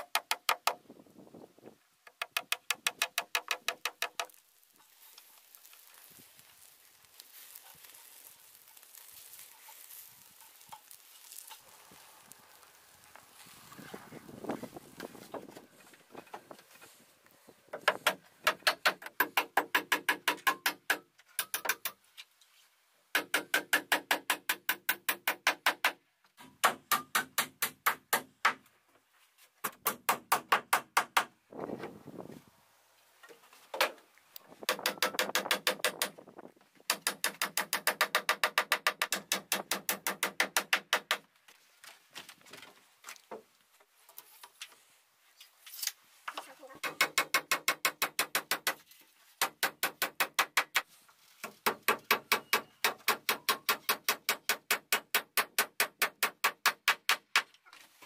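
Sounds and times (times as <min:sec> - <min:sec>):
hammer driving nails into wood: 0:00.0 - 0:00.8, 0:02.1 - 0:04.4, 0:17.8 - 0:22.0, 0:23.2 - 0:28.7, 0:29.6 - 0:31.4, 0:34.6 - 0:36.2, 0:36.9 - 0:41.3, 0:46.8 - 0:48.8, 0:49.4 - 0:57.6.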